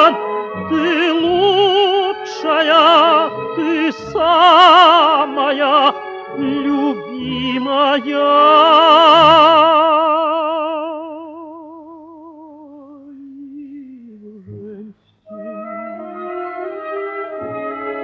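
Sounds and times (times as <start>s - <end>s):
instrumental accompaniment: 0.0s - 9.8s, 14.3s - 18.0s.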